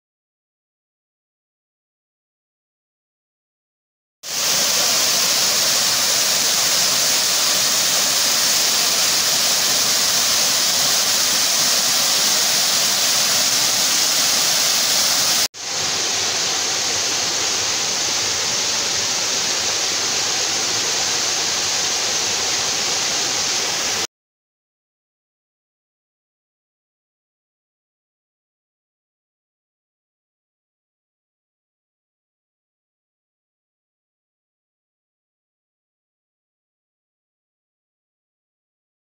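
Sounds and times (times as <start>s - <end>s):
waterfall rushing: 4.3s - 24.1s.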